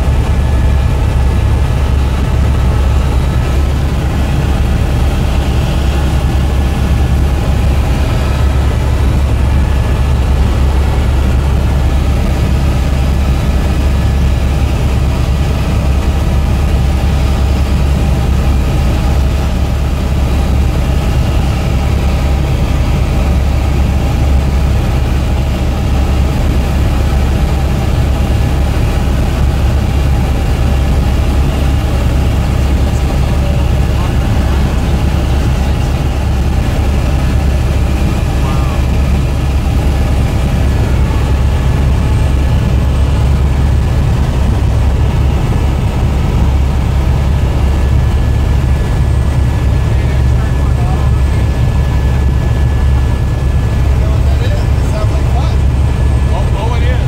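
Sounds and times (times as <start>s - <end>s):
helicopter engine and rotor drone: 0.0s - 57.0s.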